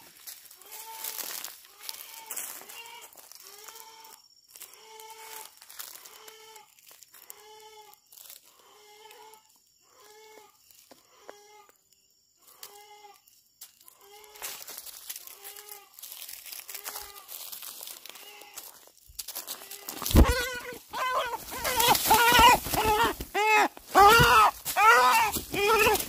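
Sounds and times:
footsteps on dry leaves: 0:00.0 - 0:03.9, 0:04.5 - 0:07.4, 0:13.6 - 0:26.0
young chicken calling: 0:19.9 - 0:26.0.

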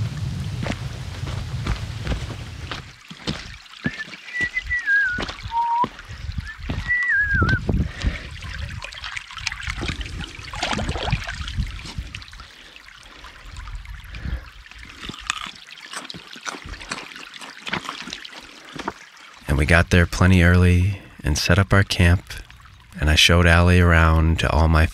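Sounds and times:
brook babbling over stones: 0:00.0 - 0:24.8
short falling whistle: 0:03.9 - 0:05.9, 0:06.9 - 0:07.6.

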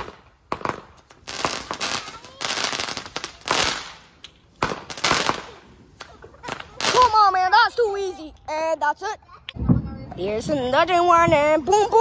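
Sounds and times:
fireworks banging and crackling: 0:00.0 - 0:08.1, 0:09.5 - 0:12.0.

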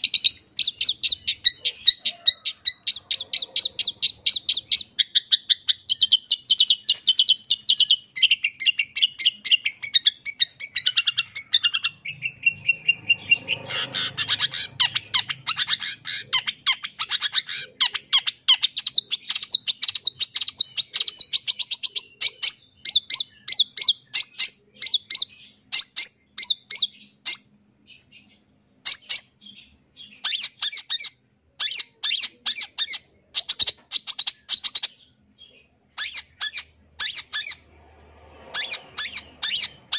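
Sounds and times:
shrike chattering song: 0:00.0 - 0:22.5.

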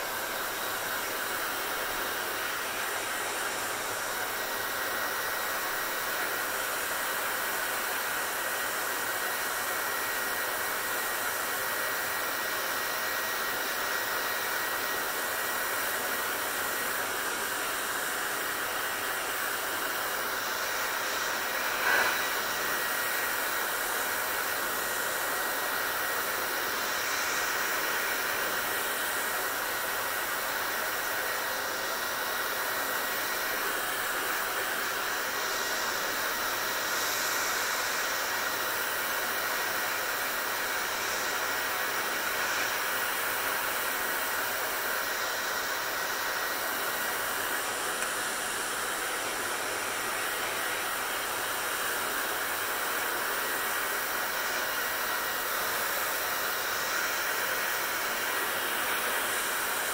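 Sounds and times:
hair dryer blowing: 0:00.0 - 0:59.9.

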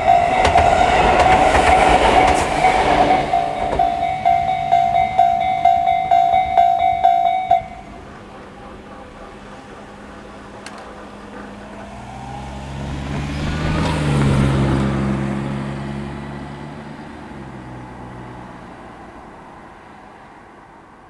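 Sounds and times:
car driving past: 0:00.0 - 0:06.1, 0:11.8 - 0:20.4.

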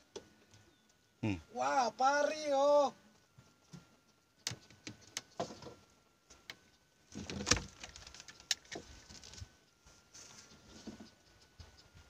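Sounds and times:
rustle: 0:02.4 - 0:12.0.

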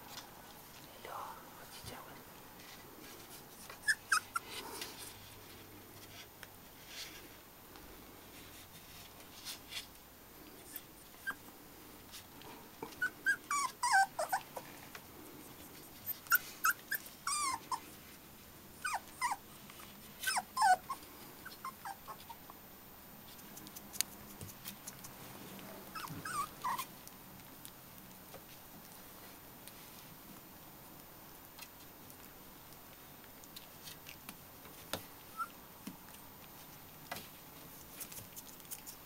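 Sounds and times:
puppies squeaking and whimpering: 0:03.6 - 0:04.6, 0:13.0 - 0:14.6, 0:16.0 - 0:17.8, 0:18.8 - 0:19.4, 0:20.2 - 0:22.5, 0:25.9 - 0:26.9, 0:35.3 - 0:35.6.

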